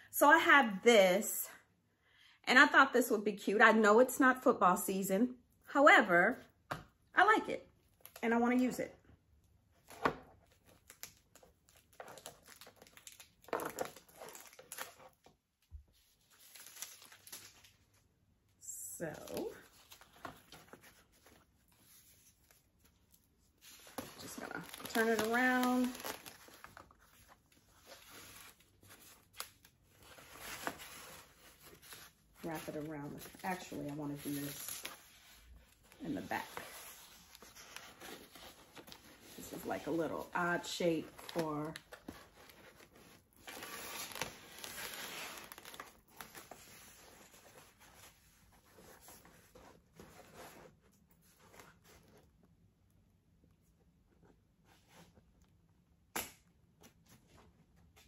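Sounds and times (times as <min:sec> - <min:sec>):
ribbon rustling and crinkling: 0:19.0 - 0:52.1.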